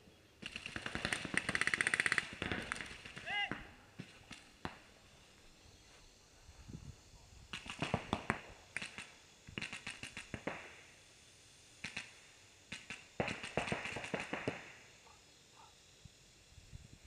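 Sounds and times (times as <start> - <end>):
paintball markers firing: 0.4 - 4.9, 7.5 - 10.8, 11.8 - 14.8.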